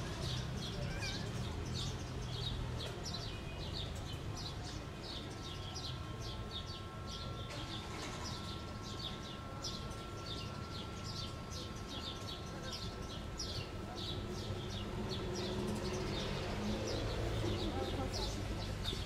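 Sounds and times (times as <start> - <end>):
faint steady high tone: 5.9 - 13.2
small birds chirping: 8.1 - 19.0.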